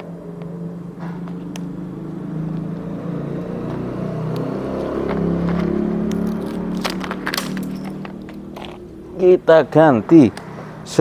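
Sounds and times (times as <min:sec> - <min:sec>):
motorcycle engine idling: 0:07.4 - 0:11.0.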